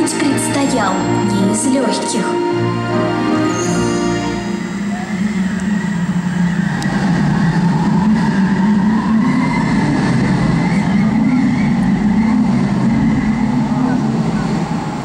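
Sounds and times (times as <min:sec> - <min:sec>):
storm wind sound effect: 0:04.1 - 0:15.0.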